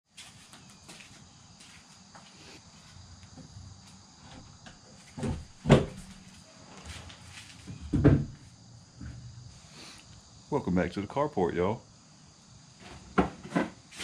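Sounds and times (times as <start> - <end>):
insect chirring: 0.5 - 14.0.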